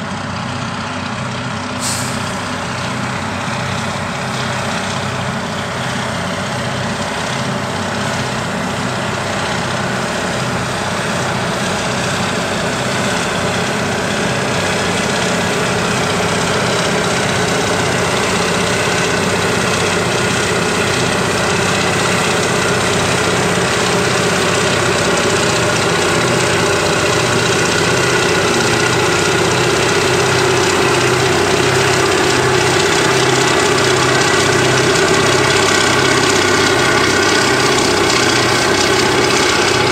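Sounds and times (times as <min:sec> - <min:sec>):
diesel engines running hard: 0:00.0 - 0:39.9.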